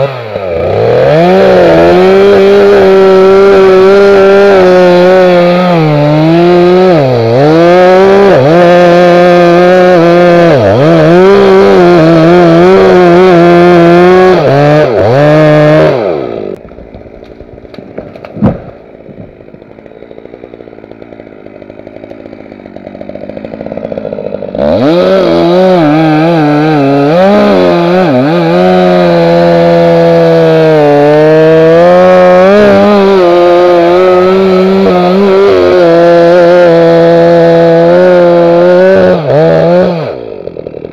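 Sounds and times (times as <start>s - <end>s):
chainsaw cutting wood: 0.0s - 40.9s
sharp thump: 17.8s - 19.3s.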